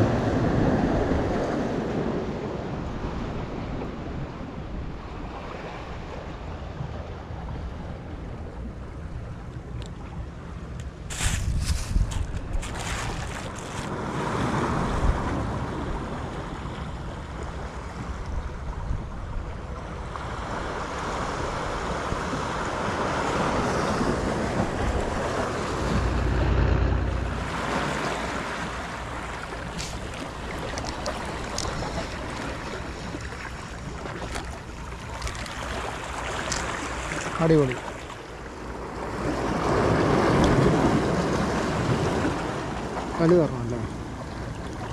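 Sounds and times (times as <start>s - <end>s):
wind buffeting microphone: 10.9s - 34.8s
sea waves washing against rocks: 11.0s - 18.7s, 19.5s - 44.9s.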